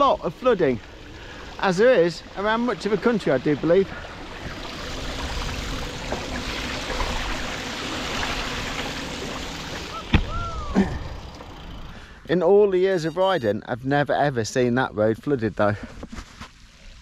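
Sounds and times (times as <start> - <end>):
bike tyre splashing through water: 0.0 - 12.0.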